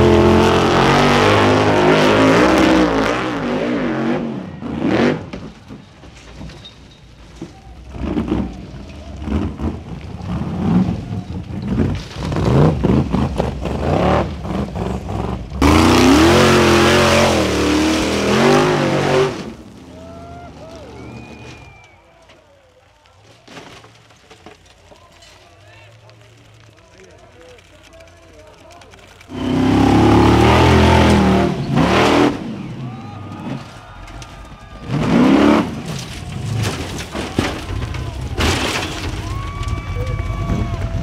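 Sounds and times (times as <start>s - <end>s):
buggy engines revving: 0.0s - 5.9s, 7.7s - 21.9s, 28.9s - 41.0s.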